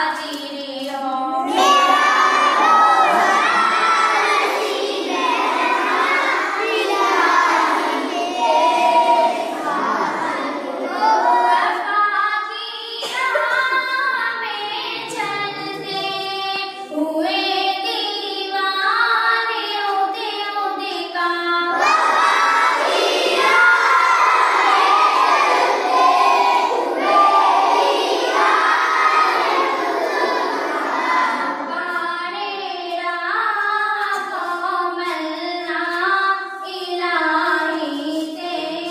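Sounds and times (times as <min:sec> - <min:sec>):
children singing in unison: 0:01.3 - 0:38.9.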